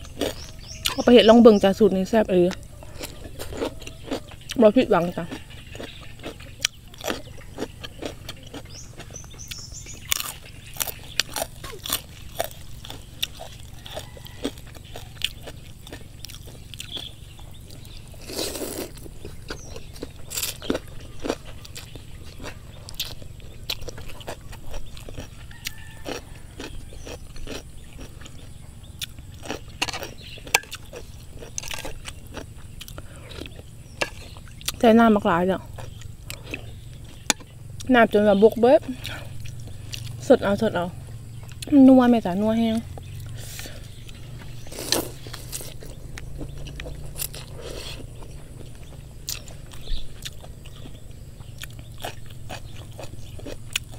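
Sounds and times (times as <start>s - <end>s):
crunchy chewing: 0.0s - 53.9s
slurping noodles: 44.7s - 45.8s.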